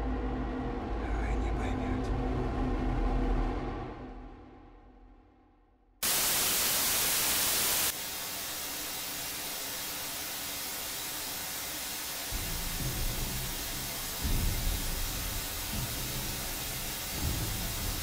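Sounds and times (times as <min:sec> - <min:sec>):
low rumble: 0:00.0 - 0:05.6
television static hiss: 0:06.0 - 0:18.0.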